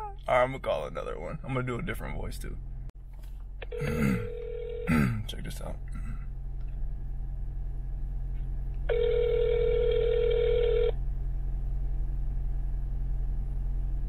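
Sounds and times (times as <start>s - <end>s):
steady low hum: 0.0s - 14.0s
telephone ringback tone: 3.7s - 4.9s, 8.9s - 11.0s.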